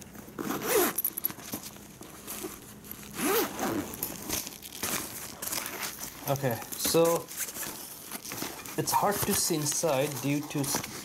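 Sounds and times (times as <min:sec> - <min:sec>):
zipper pulled open: 0:00.4 - 0:01.4, 0:02.4 - 0:06.0.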